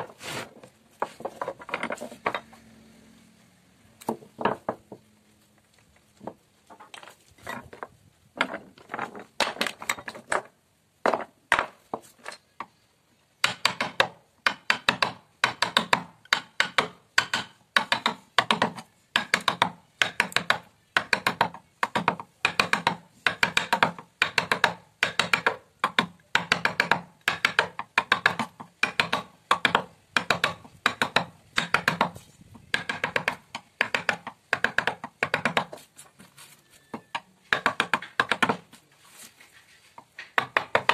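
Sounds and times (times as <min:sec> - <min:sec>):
mallet striking wooden chisel: 0:13.4 - 0:35.8, 0:37.1 - 0:38.6, 0:40.3 - 0:40.9.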